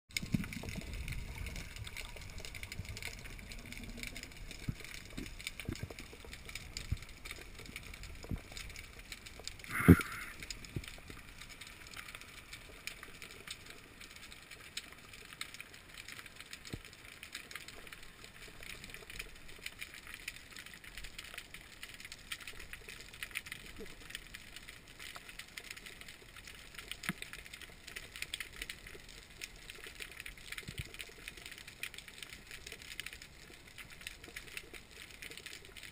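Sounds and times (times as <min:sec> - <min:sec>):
faint clicks and crackles: 0:00.1 - 0:35.9
underwater hiss: 0:09.6 - 0:10.7.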